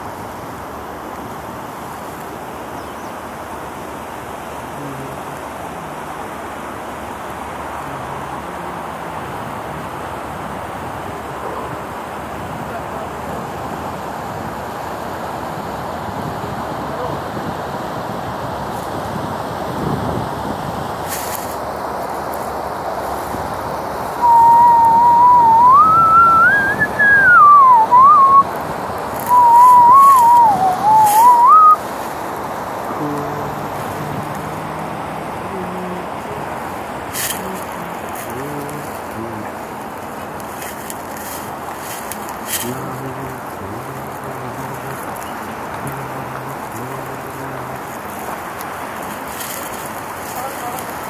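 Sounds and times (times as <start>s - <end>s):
person whistling a tune: 24.2s - 28.5s, 29.3s - 31.8s.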